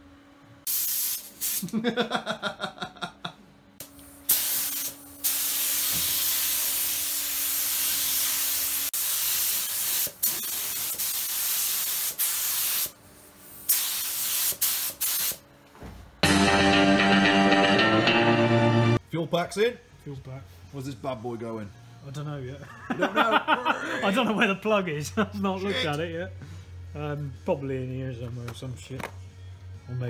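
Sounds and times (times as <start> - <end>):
spray gun air hiss: 0.7 - 1.7, 3.8 - 15.4
guitar music: 16.2 - 19.0.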